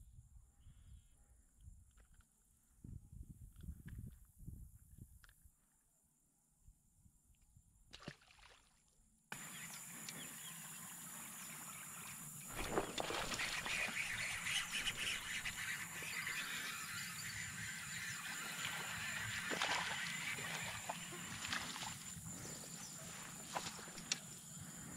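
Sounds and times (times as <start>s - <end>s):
high-pitched wildlife chorus: 9.4s - 24.9s.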